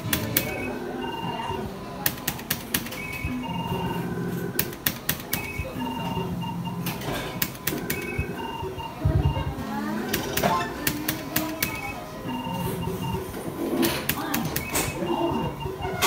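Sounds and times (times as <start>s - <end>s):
sharp clicks: 2.0s - 3.3s, 4.6s - 5.7s, 10.1s - 11.9s, 13.8s - 15.0s
short beeping electronic tunes: 5.3s - 9.5s, 11.5s - 13.4s, 14.4s - 16.0s.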